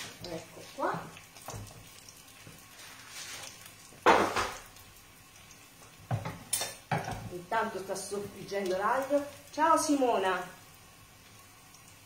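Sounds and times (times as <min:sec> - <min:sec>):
garlic sizzling in oil: 0:00.0 - 0:12.0
kitchen knocks: 0:04.0 - 0:04.6.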